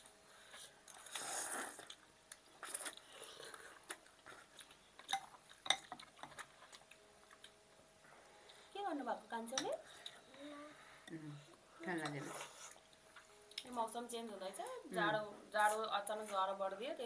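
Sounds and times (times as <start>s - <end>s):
noodle soup slurping: 0.9s - 2.0s
cutlery clinking against bowls: 5.0s - 6.5s.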